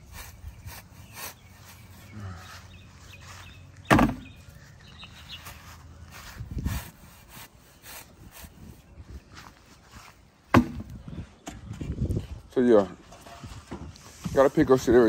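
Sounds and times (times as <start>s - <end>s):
shovel blade scraping grass: 0.0s - 2.1s, 5.4s - 8.8s
sharp knock: 3.9s - 4.3s
dull thud: 3.9s - 4.4s, 10.5s - 11.6s.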